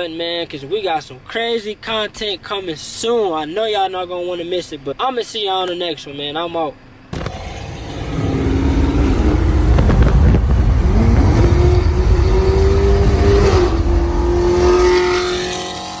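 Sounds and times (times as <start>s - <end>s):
road rumble: 0.0s - 16.0s
car exhaust at speed: 7.1s - 16.0s
heavy wind: 7.2s - 14.7s.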